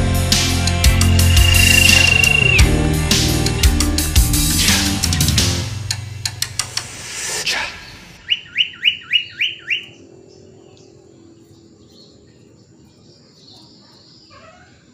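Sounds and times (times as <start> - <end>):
music: 0.0 - 8.2
bird whistling rising notes: 0.8 - 2.9, 6.9 - 10.1.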